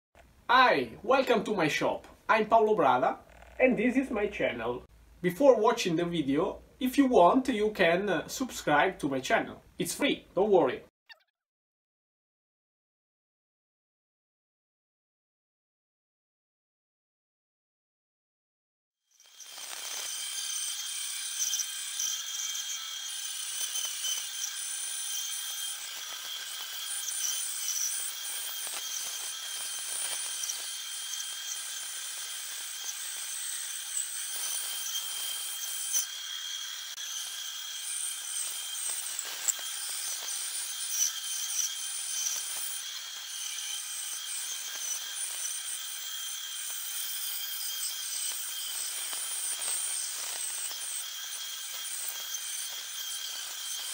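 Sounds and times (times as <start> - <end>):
bandsaw cutting wood: 19.2 - 53.9.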